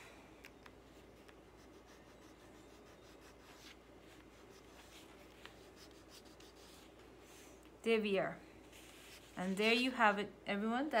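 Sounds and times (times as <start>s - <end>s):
crayon scratching on paper: 1.2s - 6.9s.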